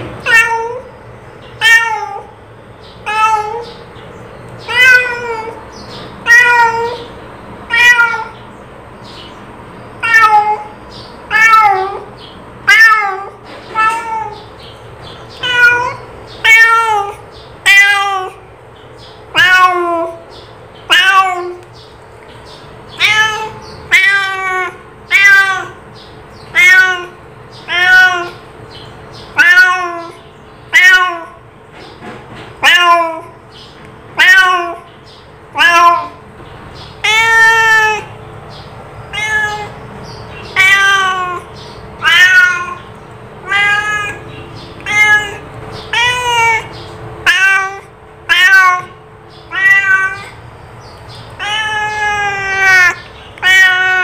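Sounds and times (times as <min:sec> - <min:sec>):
cat meowing: 0:00.2 - 0:00.9, 0:01.6 - 0:02.4, 0:03.0 - 0:03.8, 0:04.6 - 0:07.1, 0:07.7 - 0:08.4, 0:10.0 - 0:14.5, 0:15.3 - 0:18.5, 0:19.3 - 0:20.2, 0:20.8 - 0:21.7, 0:22.9 - 0:28.5, 0:29.2 - 0:31.4, 0:32.6 - 0:33.4, 0:34.1 - 0:34.9, 0:35.5 - 0:36.2, 0:36.8 - 0:38.2, 0:39.0 - 0:50.4, 0:51.3 - 0:54.0.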